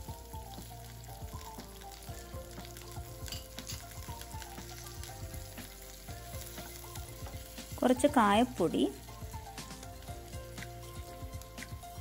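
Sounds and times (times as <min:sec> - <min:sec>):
food sizzling in oil: 0:00.0 - 0:12.0
soft background music: 0:00.0 - 0:12.0.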